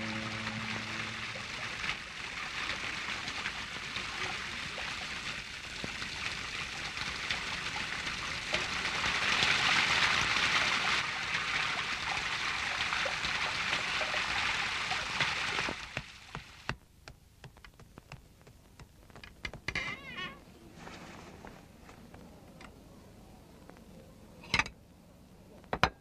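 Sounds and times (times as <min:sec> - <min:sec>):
small crackles: 0:00.0 - 0:09.6, 0:13.6 - 0:24.5
rushing trickling noise: 0:00.0 - 0:16.7.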